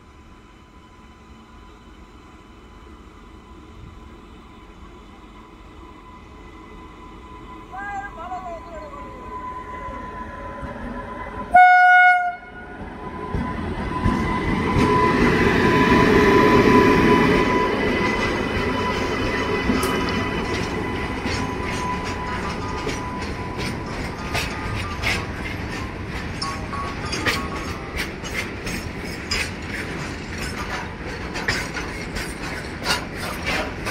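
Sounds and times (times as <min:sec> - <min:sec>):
locomotive rumble: 0:01.8 - 0:33.9
train horn blast: 0:09.1 - 0:13.4
wheels clicking over rail joints: 0:17.9 - 0:33.9.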